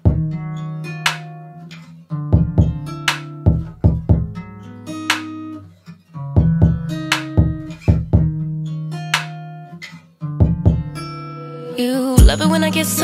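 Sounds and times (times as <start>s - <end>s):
plucked guitar notes: 0.0s - 13.0s
kick drum thumps: 0.1s - 0.4s, 2.4s - 2.9s, 3.5s - 4.4s, 6.4s - 8.4s, 10.4s - 11.0s, 12.2s - 12.4s.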